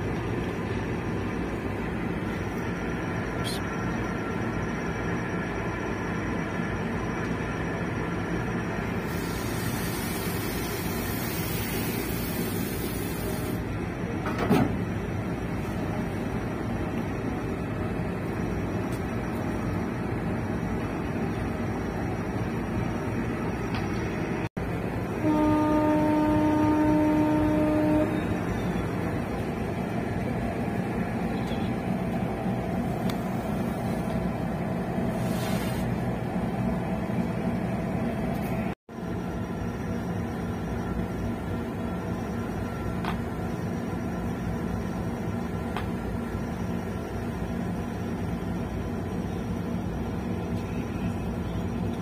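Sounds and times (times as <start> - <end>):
ship engines droning: 0.0 - 52.0
ship's horn blast: 25.1 - 28.6.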